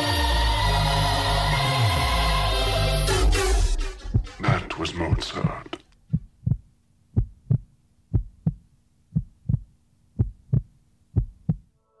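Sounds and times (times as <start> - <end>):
heartbeat thumps: 4.0 - 11.8.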